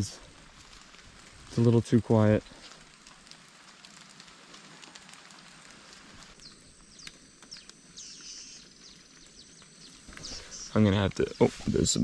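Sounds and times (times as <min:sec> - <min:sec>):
light rain dripping: 0:00.0 - 0:12.0
faint high falling chirps: 0:06.4 - 0:11.6.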